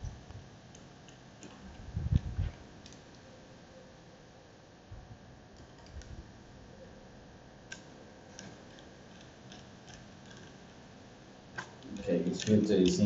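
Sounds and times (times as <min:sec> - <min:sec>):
small metal parts clicking: 0:07.7 - 0:10.7, 0:11.6 - 0:13.0.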